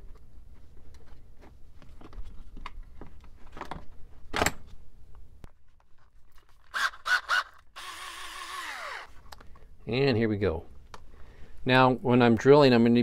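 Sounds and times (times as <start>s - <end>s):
drill motor bursts: 6.7s - 9.1s.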